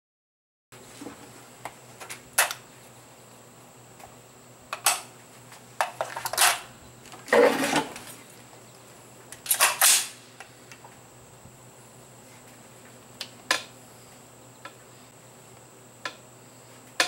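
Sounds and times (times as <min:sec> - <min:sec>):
rifle metallic clicks and clacks: 0:09.4 - 0:10.2.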